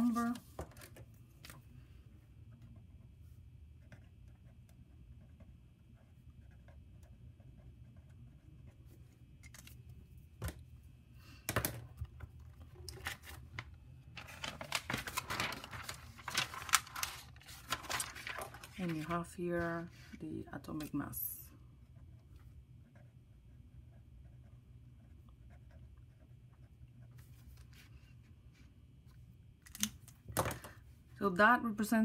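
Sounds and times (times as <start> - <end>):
notebook pages rustling and flapping: 12.4 - 19.9.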